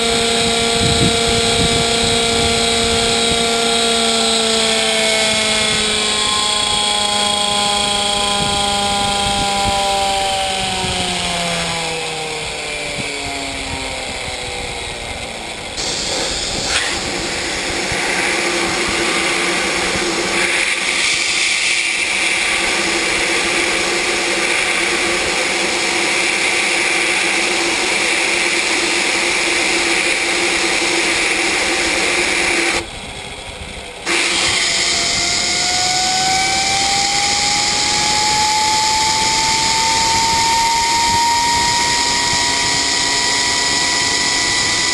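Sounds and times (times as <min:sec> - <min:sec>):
turbine rotor whine: 0:00.0 - 0:44.9
compressed-air gun hissing: 0:15.8 - 0:32.8, 0:34.0 - 0:38.4.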